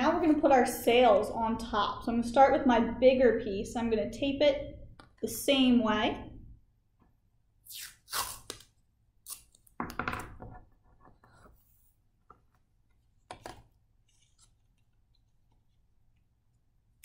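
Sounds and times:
masking tape ripping: 0:07.7 - 0:09.7.

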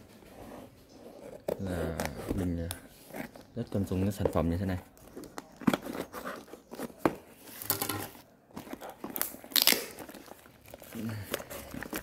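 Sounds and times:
tape crinkling: 0:01.4 - 0:12.0
tape and cardboard ripping: 0:08.8 - 0:12.0.

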